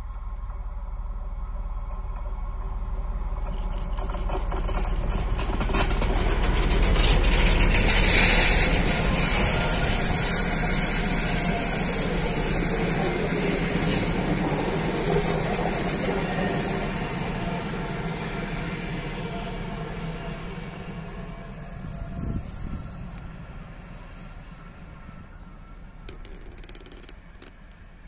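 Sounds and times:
diesel locomotive engine passing: 0.0s - 28.0s
train wheels clicking over rails: 1.7s - 28.0s.

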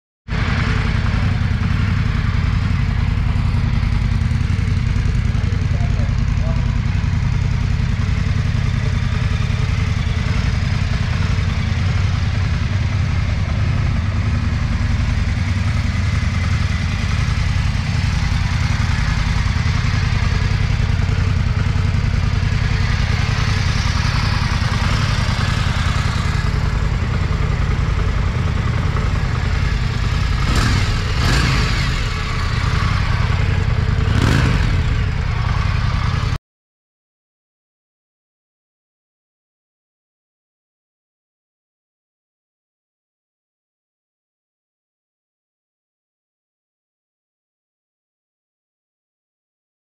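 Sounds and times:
motorcycle engine idling: 0.3s - 36.4s
throttle revs: 17.8s - 36.4s.

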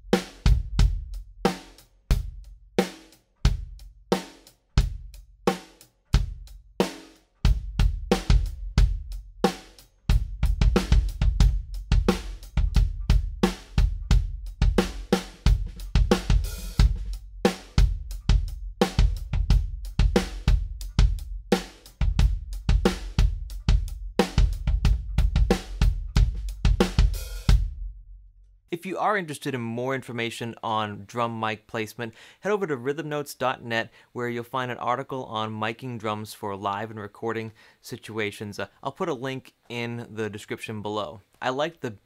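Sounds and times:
drum kit groove: 0.0s - 28.0s.

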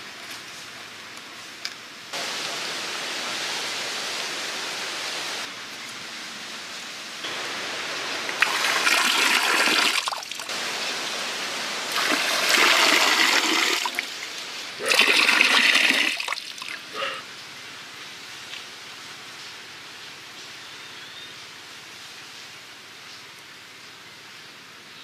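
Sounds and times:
water pouring and splashing: 7.2s - 17.0s.

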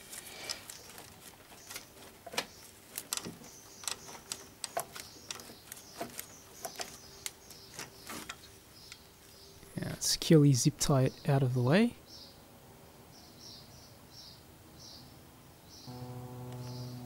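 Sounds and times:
engine parts clicking and knocking: 0.5s - 8.4s
faint steady hum: 15.4s - 17.0s.

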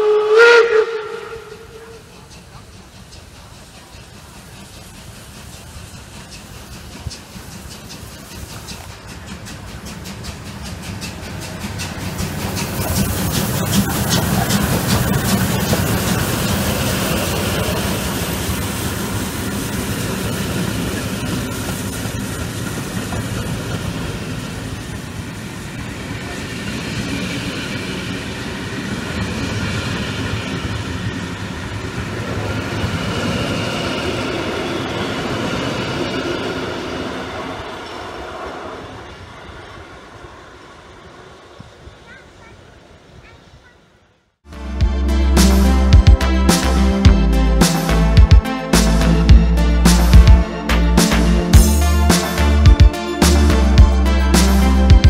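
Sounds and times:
steam locomotive running past: 0.0s - 55.0s
train wheels rolling over rails: 1.0s - 43.7s.

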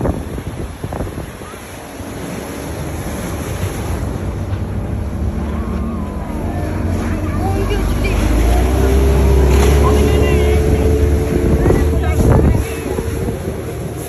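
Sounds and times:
water rushing past boat hull: 0.0s - 14.0s
wind buffeting microphone: 0.0s - 14.0s
low engine drone: 0.7s - 14.0s.

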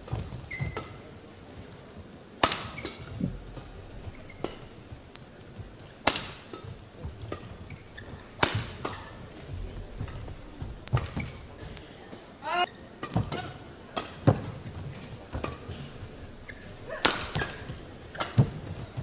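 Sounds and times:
shoes squeaking on court: 0.0s - 11.9s, 12.6s - 19.0s
rackets striking shuttlecock: 2.4s - 9.4s, 10.0s - 11.9s, 13.0s - 14.6s, 15.3s - 18.8s.

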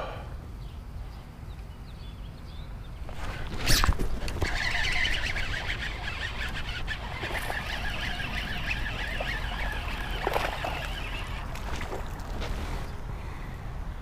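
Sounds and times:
fishing reel clicking whir: 3.1s - 12.3s.

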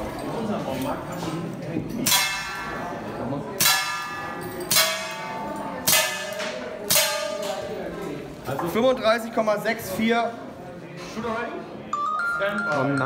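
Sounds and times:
steel plate ringing from hits: 2.0s - 3.0s, 3.6s - 7.8s.

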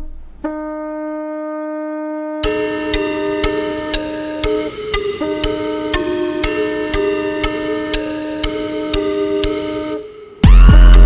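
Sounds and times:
electronic music with synth chords: 0.0s - 11.0s.

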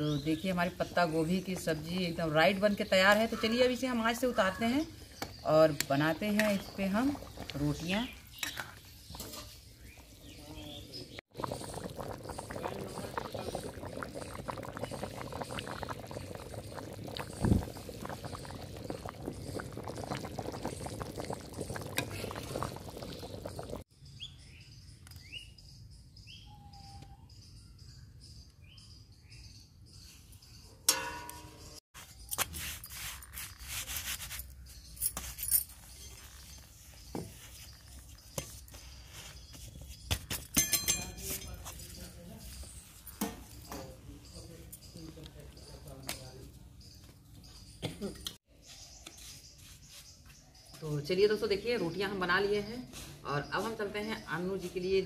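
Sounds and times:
birds chirping: 0.0s - 32.3s, 34.5s - 55.0s
curry bubbling in a pan: 6.2s - 23.9s.

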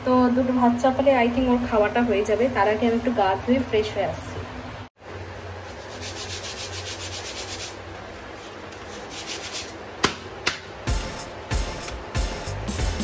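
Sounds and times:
brushing strokes on roti: 5.5s - 9.8s.

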